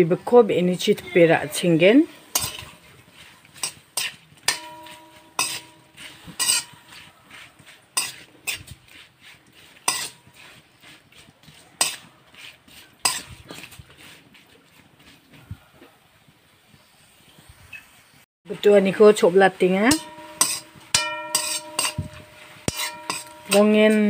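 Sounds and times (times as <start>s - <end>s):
metal spoon scraping steel wok: 0.5s - 14.2s, 19.5s - 24.0s.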